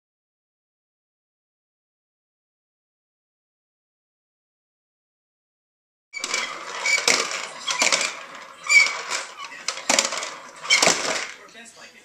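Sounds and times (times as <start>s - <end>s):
toy push popper balls popping: 6.2s - 11.4s.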